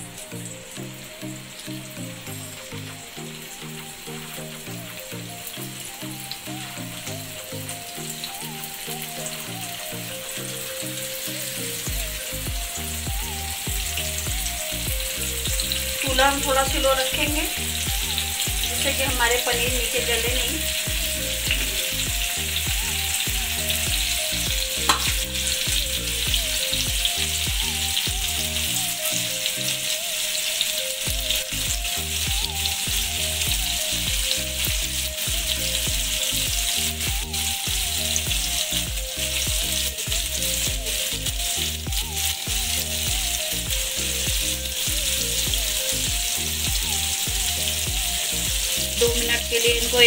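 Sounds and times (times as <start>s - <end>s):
cheese frying in a pan: 0.0s - 50.0s
sharp tap: 24.9s - 25.2s.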